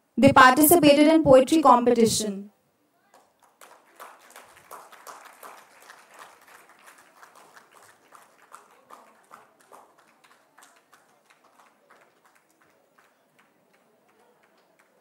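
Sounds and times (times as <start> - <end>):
audience clapping: 3.1 - 15.0.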